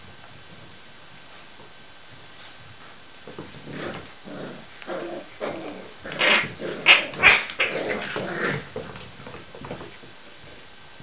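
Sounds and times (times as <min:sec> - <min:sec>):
puppies growling: 0:03.5 - 0:09.4.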